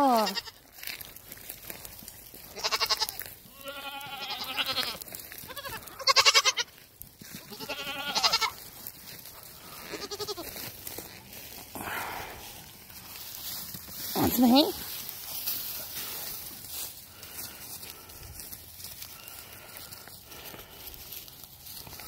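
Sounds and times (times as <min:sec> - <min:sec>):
young goats bleating: 0:00.0 - 0:00.8, 0:02.2 - 0:08.8, 0:09.5 - 0:11.0.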